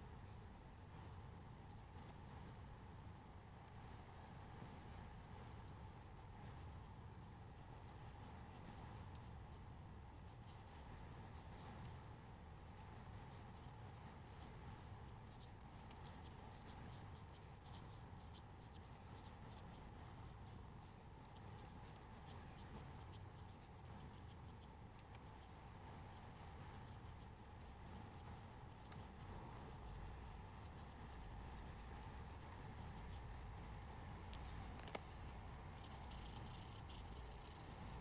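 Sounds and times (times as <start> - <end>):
steady low hum: 0.0 - 38.0
marker pen scratching on paper: 13.1 - 38.0.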